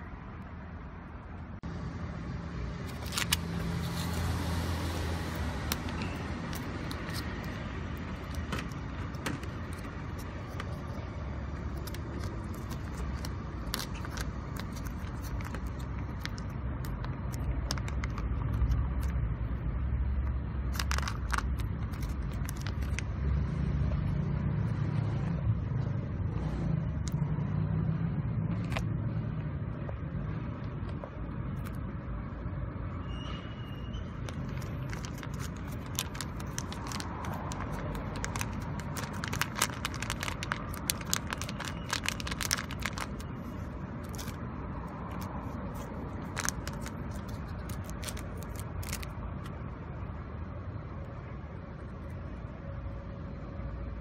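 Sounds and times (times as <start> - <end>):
road traffic rumble: 0.0 - 54.0
foil pouch crinkling: 2.8 - 4.6, 5.2 - 11.1, 11.7 - 19.1, 20.7 - 23.1, 34.2 - 49.2.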